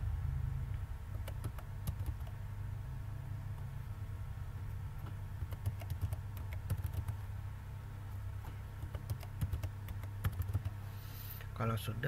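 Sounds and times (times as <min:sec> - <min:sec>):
steady low hum: 0:00.0 - 0:12.0
keyboard typing: 0:01.1 - 0:02.4, 0:05.0 - 0:07.2, 0:08.8 - 0:10.8.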